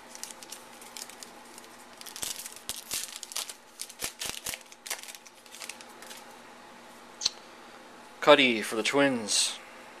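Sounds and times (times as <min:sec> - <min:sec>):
wrapper crinkling: 0:00.0 - 0:06.3.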